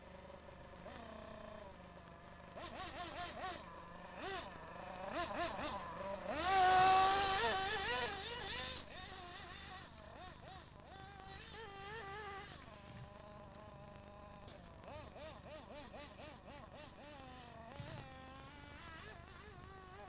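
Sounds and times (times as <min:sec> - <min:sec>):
model car engine revving: 0:00.0 - 0:20.0.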